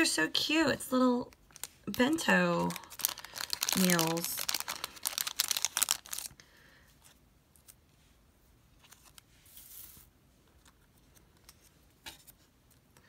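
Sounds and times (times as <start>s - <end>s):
paper stickers ticking: 1.3s - 6.3s
soft paper rustle: 1.3s - 13.0s.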